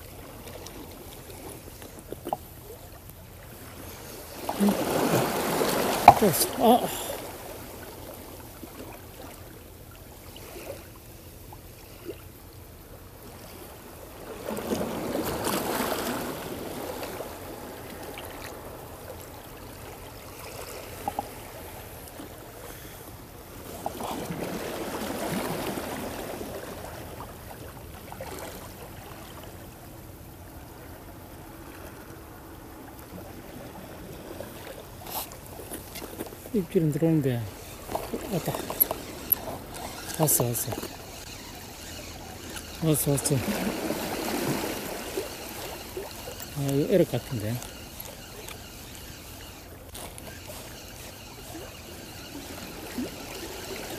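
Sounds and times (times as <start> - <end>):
waves washing against seawall: 0.0 - 9.5, 32.4 - 53.9
steady water noise: 0.0 - 53.9.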